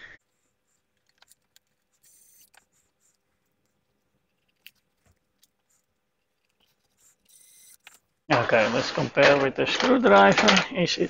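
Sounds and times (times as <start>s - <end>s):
electric screwdriver whirring: 1.9s - 2.8s, 7.0s - 8.0s.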